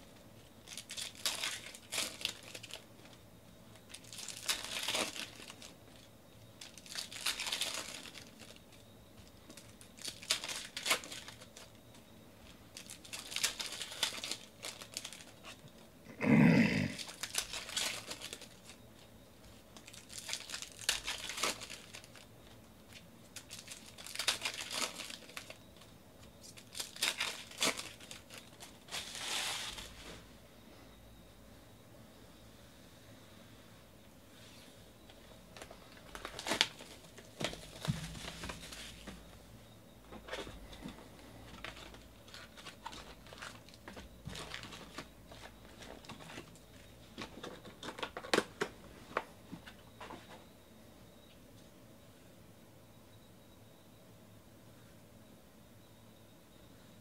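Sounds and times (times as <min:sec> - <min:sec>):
foil wrappers tearing and crinkling: 0:00.6 - 0:02.9, 0:03.8 - 0:08.8, 0:09.5 - 0:11.8, 0:12.7 - 0:15.7, 0:17.0 - 0:18.8, 0:19.8 - 0:22.3, 0:22.9 - 0:30.0, 0:35.6 - 0:39.1, 0:41.6 - 0:46.6.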